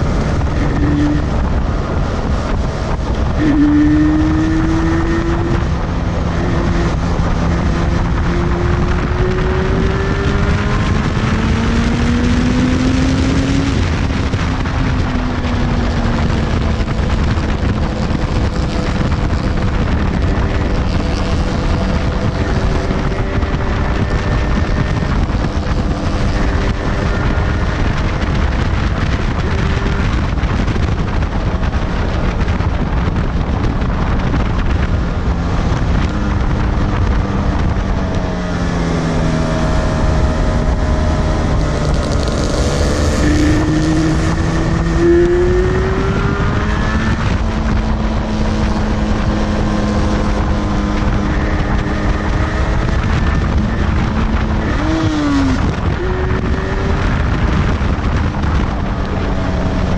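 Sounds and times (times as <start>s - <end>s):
motorcycle engine revving: 0.0s - 59.9s
wind buffeting microphone: 0.0s - 59.9s.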